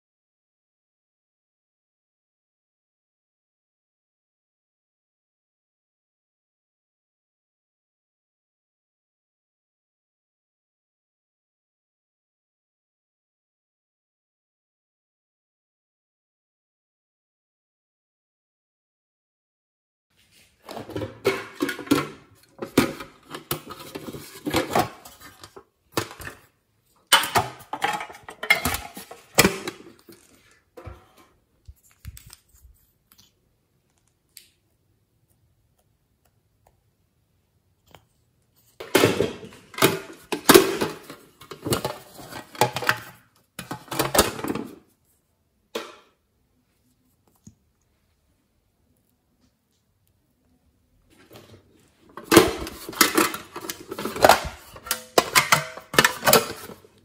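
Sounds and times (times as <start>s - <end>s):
plastic packaging rustling and clicking: 20.6s - 34.6s, 38.7s - 44.8s, 51.1s - 57.0s.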